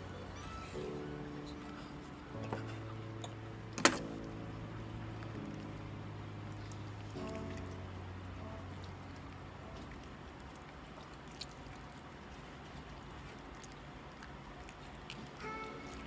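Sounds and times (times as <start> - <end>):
wet squishing of chicken skin: 8.8 - 15.5.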